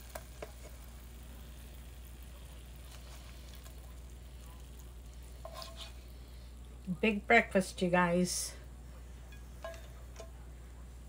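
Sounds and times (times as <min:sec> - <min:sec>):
eggs sizzling in a skillet: 0:00.0 - 0:10.4.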